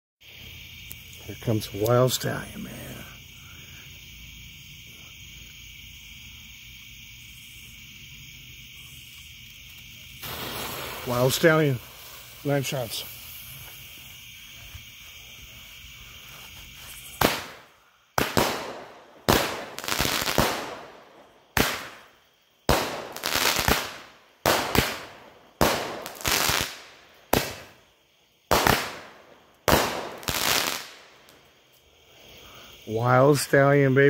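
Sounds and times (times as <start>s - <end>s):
firework shell bursting: 8.9s - 14.0s, 17.0s - 27.8s, 28.5s - 31.4s.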